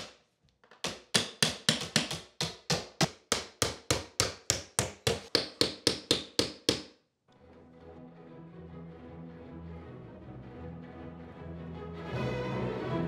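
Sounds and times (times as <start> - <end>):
hammer tapping nail punch: 0.8 - 6.9.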